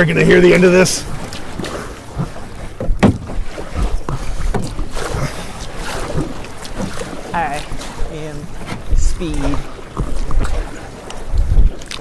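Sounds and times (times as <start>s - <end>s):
paddles splashing in water: 0.0s - 12.0s
paddle knocks: 1.2s - 8.0s.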